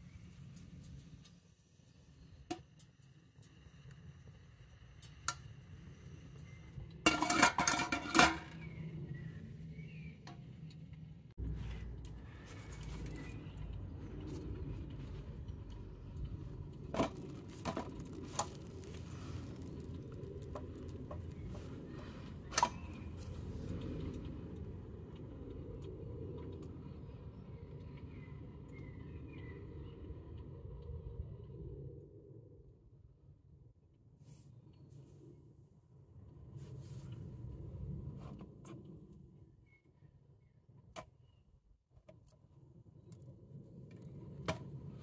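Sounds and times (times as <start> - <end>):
crackles and clicks: 0.0 - 32.4, 40.7 - 45.0
steady low rumble: 3.2 - 34.1
metal cookware clattering: 7.1 - 8.6.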